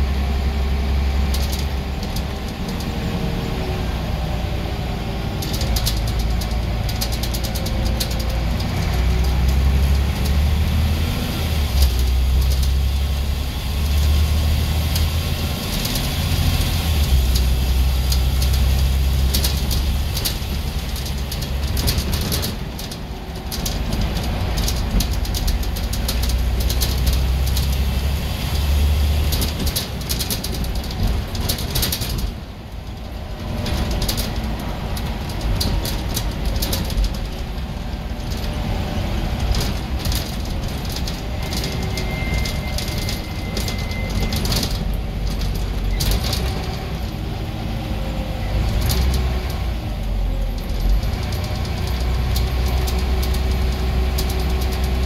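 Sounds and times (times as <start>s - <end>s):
bus diesel engine under load: 0.0s - 55.0s
interior panels rattling: 28.8s - 47.5s.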